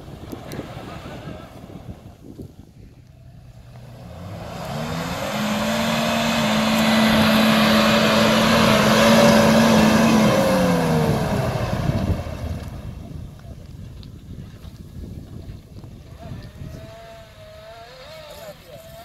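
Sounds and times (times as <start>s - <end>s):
off-road vehicle engine revving hard: 3.4s - 13.0s, 16.2s - 19.0s.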